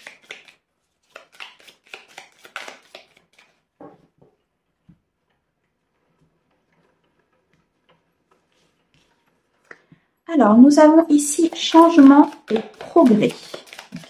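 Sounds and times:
cards being shuffled: 0.0 - 3.7, 11.4 - 14.0.

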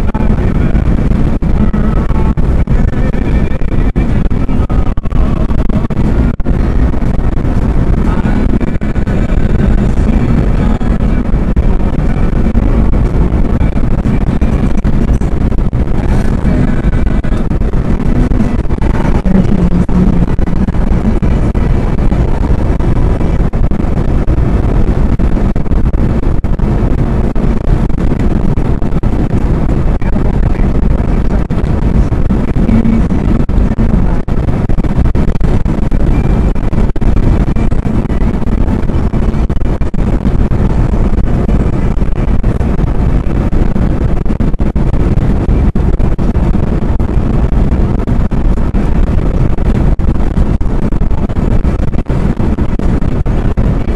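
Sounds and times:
car cabin road and wind noise: 0.0 - 53.9.

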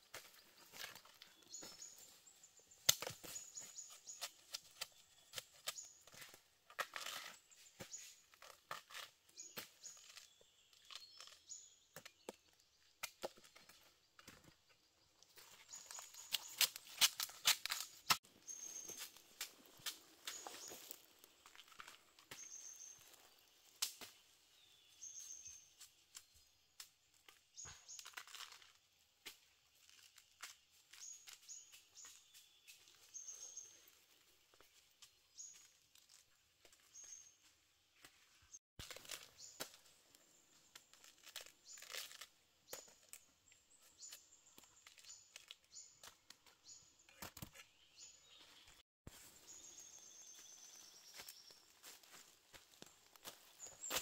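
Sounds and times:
dry leaves and twigs crackling: 0.0 - 54.0.

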